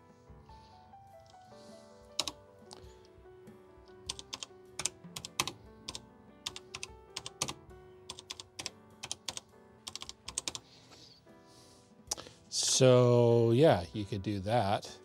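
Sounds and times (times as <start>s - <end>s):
faint background music: 0.0s - 15.0s
keyboard key clicks: 2.2s - 2.8s, 4.1s - 10.6s.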